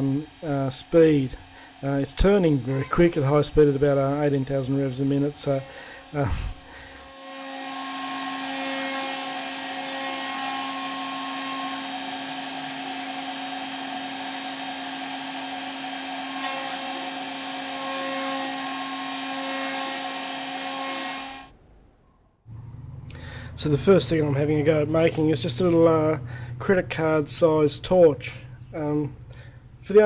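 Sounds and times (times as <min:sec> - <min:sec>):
milling machine spindle whine: 0:00.0 - 0:21.5.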